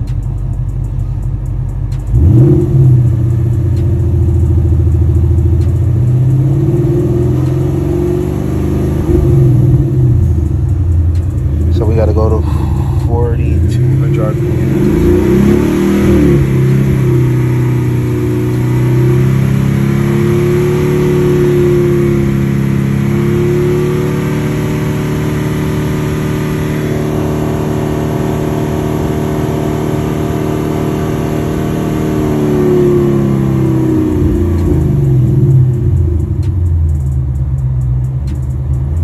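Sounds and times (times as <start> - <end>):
car engine at raised rpm: 0.0 - 39.0.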